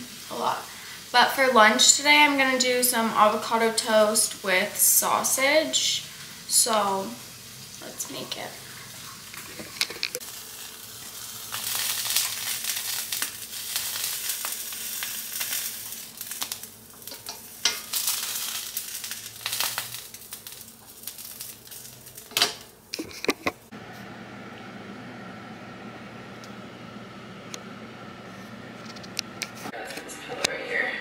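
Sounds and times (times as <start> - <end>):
food sizzling in skillet: 0.0 - 22.9.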